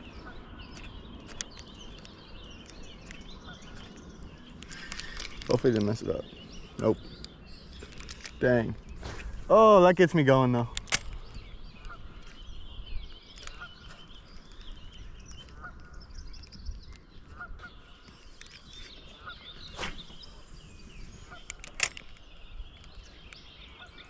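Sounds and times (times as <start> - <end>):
bird calling: 0.0 - 24.0
birds chirping: 0.0 - 24.0
sharp clicks: 10.6 - 12.0, 21.3 - 23.4.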